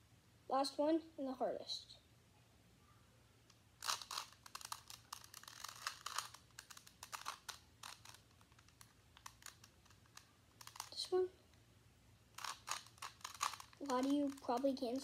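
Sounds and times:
plastic puzzle cube clicking: 0:03.8 - 0:11.0, 0:12.4 - 0:15.0.

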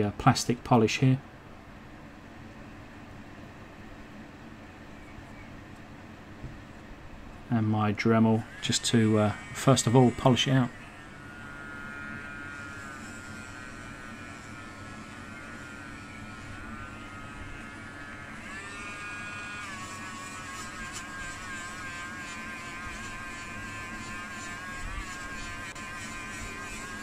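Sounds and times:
rotary tool motor whine: 0:08.0 - 0:27.0.

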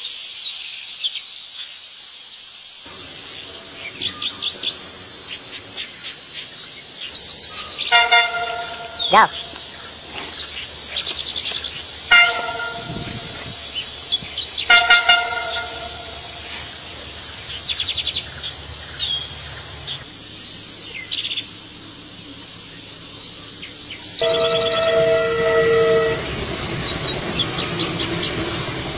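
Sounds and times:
insects droning: 0:00.1 - 0:28.9
train rumbling: 0:02.9 - 0:20.7, 0:23.2 - 0:28.9
train horn toots: 0:07.8 - 0:10.3, 0:11.7 - 0:17.6, 0:24.2 - 0:28.9.

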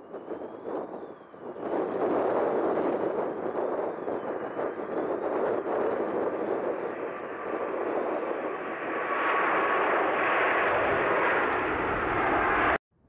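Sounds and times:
jet engines at takeoff power: 0:00.0 - 0:12.8.

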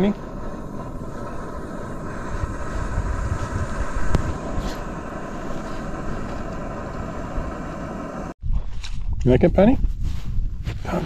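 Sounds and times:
stove burner roaring: 0:00.0 - 0:08.4.

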